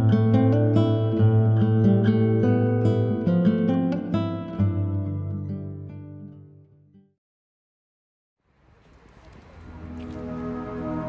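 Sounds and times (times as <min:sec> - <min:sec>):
plucked acoustic guitar: 0:00.0 - 0:07.1.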